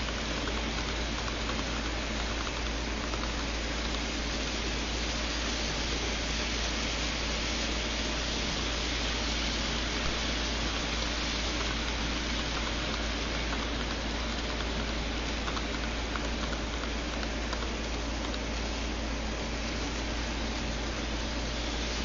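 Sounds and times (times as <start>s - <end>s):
model train wheels on rails: 0.0s - 22.0s.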